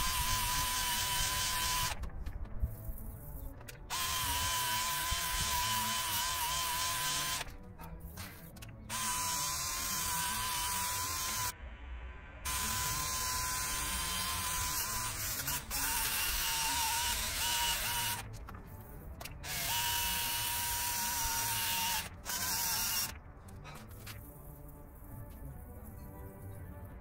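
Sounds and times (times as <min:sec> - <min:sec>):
electric power tool motor whining: 0:00.0 - 0:02.0, 0:03.9 - 0:07.5, 0:08.9 - 0:11.5, 0:12.5 - 0:18.2, 0:19.4 - 0:23.1.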